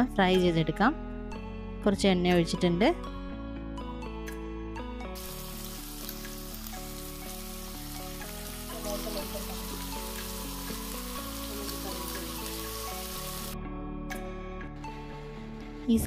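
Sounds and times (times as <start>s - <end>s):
fish sizzling in hot oil: 5.2s - 13.6s.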